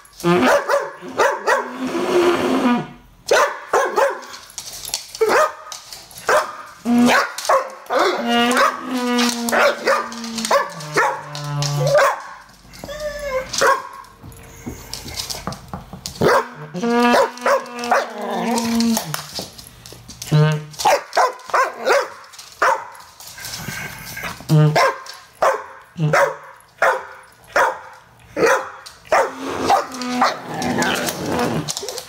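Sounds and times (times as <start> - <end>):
dog barking: 0.4 - 1.8, 3.3 - 4.3, 5.2 - 5.6, 6.3 - 8.8, 9.6 - 11.2, 11.9 - 12.4, 13.6 - 14.0, 16.2 - 18.0, 20.8 - 22.9, 24.8 - 30.4.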